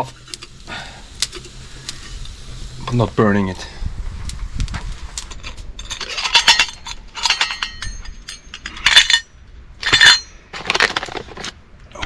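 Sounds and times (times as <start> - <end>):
metal pot and lid clinking: 5.4 - 10.4.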